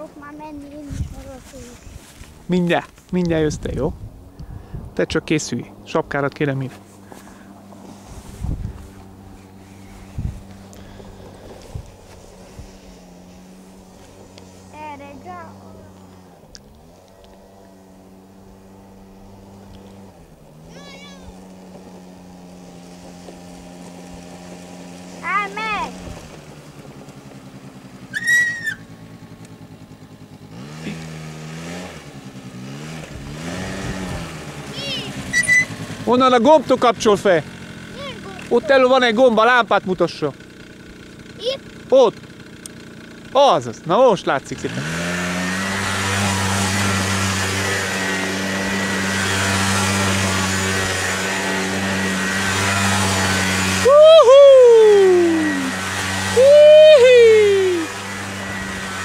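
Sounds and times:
small engine running: 0:00.0 - 0:59.0
brief high-pitched cry: 0:53.8 - 0:55.8, 0:56.4 - 0:58.0.

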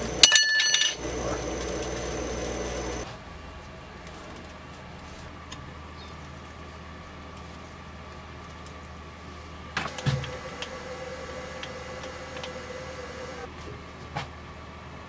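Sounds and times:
metal parts clunking: 0:00.0 - 0:02.0
faint machine hum: 0:00.0 - 0:15.0
low workshop hum: 0:00.0 - 0:15.0.

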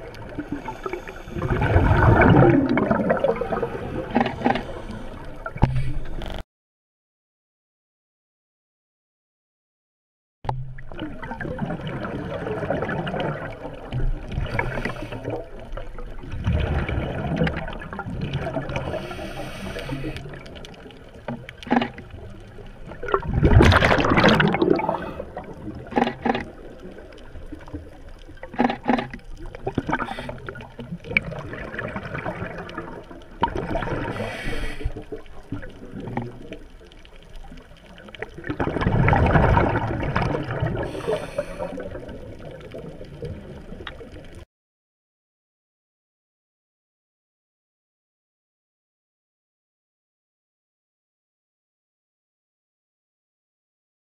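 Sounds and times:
bubbling exhalations: 0:00.1 - 0:06.0, 0:16.3 - 0:20.7, 0:23.0 - 0:27.2, 0:28.4 - 0:36.5, 0:38.2 - 0:43.9
diver breathing through regulator: 0:00.3 - 0:01.8, 0:03.5 - 0:06.4, 0:14.4 - 0:15.4, 0:18.8 - 0:20.5, 0:24.7 - 0:25.5, 0:29.9 - 0:30.6, 0:34.0 - 0:35.1, 0:40.8 - 0:42.0.

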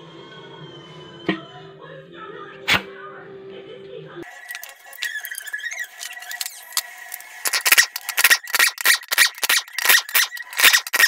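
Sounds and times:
air wrench bursts: 0:04.4 - 0:11.0.

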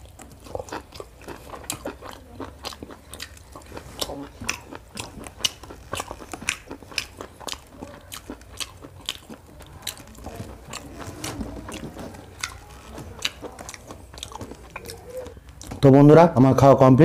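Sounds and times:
lip smacks and mouth clicks: 0:00.0 - 0:11.0
wet chewing: 0:00.0 - 0:15.9.

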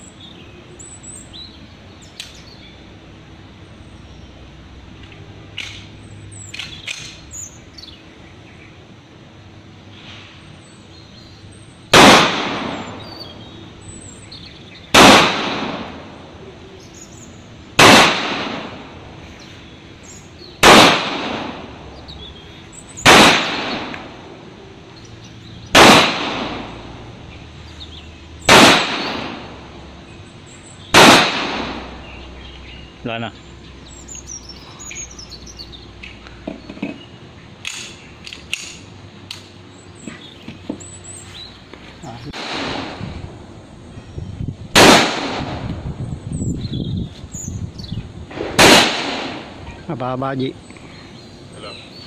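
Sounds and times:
pistol shots with echo: 0:11.9 - 0:13.1, 0:14.9 - 0:16.1, 0:17.8 - 0:18.9, 0:20.6 - 0:21.7, 0:23.0 - 0:24.2, 0:25.7 - 0:26.8, 0:28.4 - 0:29.6, 0:30.9 - 0:32.0, 0:42.3 - 0:43.0, 0:44.8 - 0:45.6, 0:48.3 - 0:49.5.

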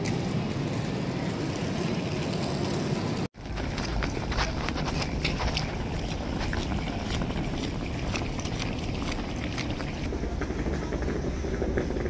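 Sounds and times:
busy city street hum: 0:00.0 - 0:12.0
footsteps on paving stones: 0:03.4 - 0:10.1.

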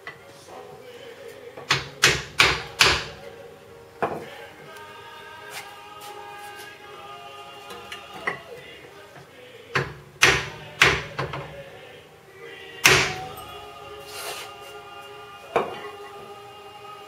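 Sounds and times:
hammer striking steel: 0:10.2 - 0:11.4, 0:12.8 - 0:13.4.

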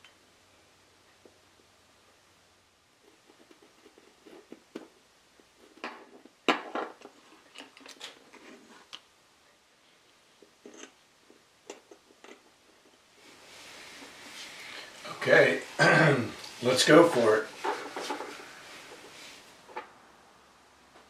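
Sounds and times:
pencil tracing: 0:03.0 - 0:04.6.

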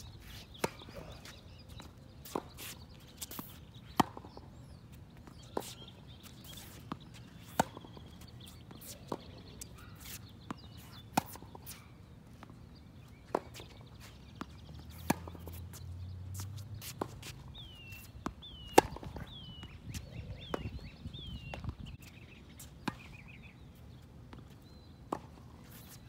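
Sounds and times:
tennis ball hit by racquet: 0:03.4 - 0:04.4, 0:07.4 - 0:08.0, 0:14.4 - 0:15.6, 0:16.4 - 0:20.8.

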